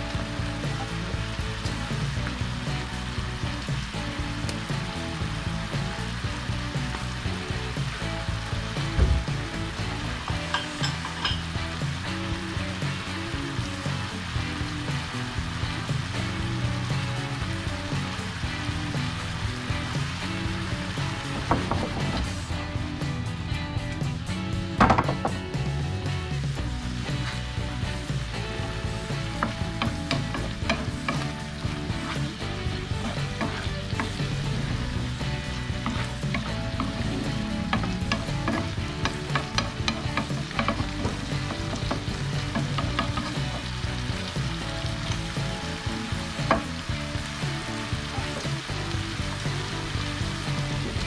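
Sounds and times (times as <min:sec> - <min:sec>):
sauce sizzling: 0:00.0 - 0:51.0
wooden spatula scraping a pan: 0:29.2 - 0:43.6.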